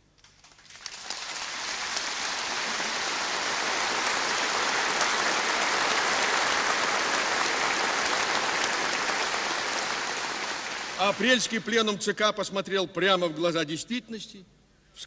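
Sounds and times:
large audience applauding: 0.0s - 11.8s.

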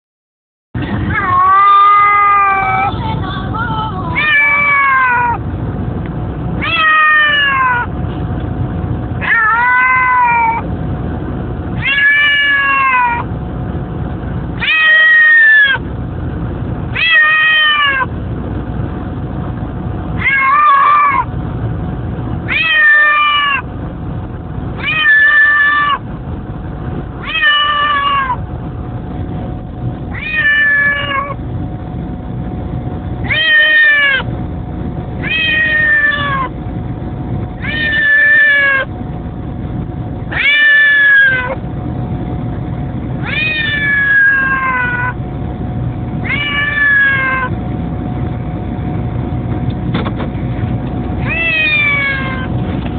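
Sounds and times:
car road rumble: 0.8s - 52.9s
cat meowing: 1.1s - 2.9s, 4.2s - 5.4s, 6.6s - 7.9s, 9.2s - 10.6s, 11.8s - 13.3s, 14.6s - 15.8s, 17.0s - 18.1s, 20.2s - 21.3s, 22.5s - 23.7s, 24.8s - 26.0s, 27.2s - 28.4s, 30.1s - 31.4s, 33.2s - 34.3s, 35.2s - 36.5s, 37.6s - 38.9s, 40.3s - 41.6s, 43.2s - 45.2s, 46.2s - 47.5s, 51.2s - 52.6s.

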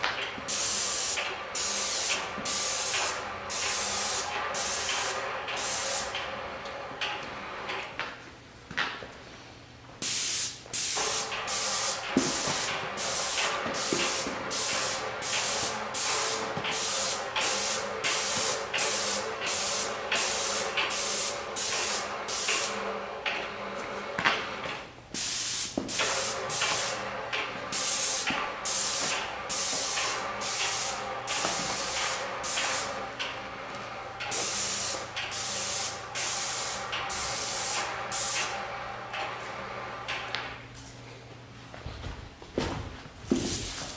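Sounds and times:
paint spray gun hissing: 0.5s - 6.1s, 10.0s - 22.9s, 25.2s - 33.1s, 34.3s - 38.6s.

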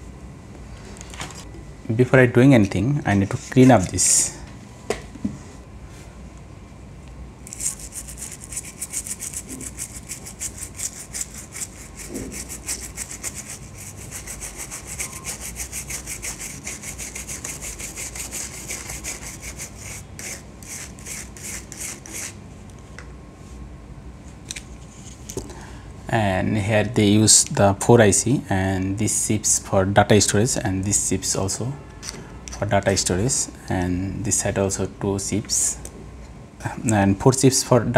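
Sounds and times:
brush scrubbing circuit board: 7.5s - 22.4s.

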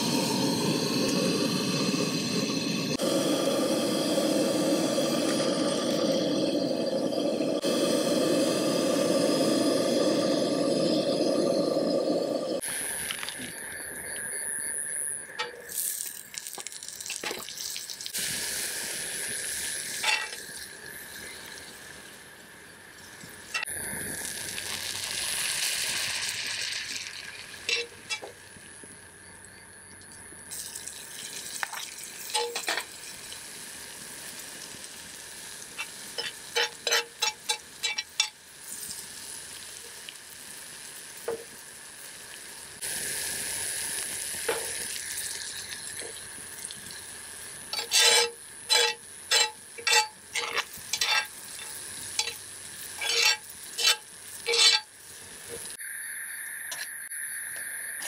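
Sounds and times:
food sizzling in a pan: 0.0s - 58.0s.

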